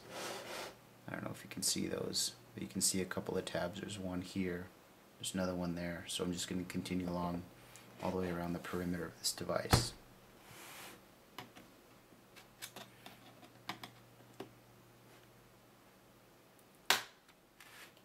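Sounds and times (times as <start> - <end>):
loud plastic snap: 16.9 - 17.3.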